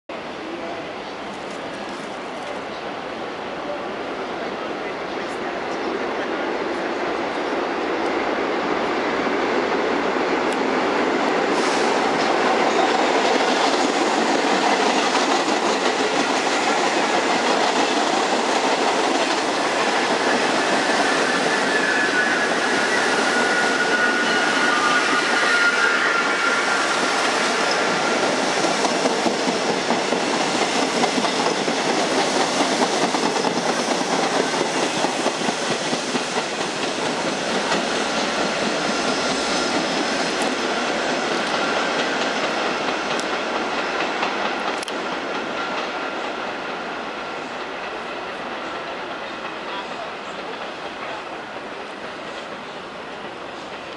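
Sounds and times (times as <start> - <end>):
train wheels clattering on rail: 7.2 - 53.9
wheel squeal: 20.6 - 27.0.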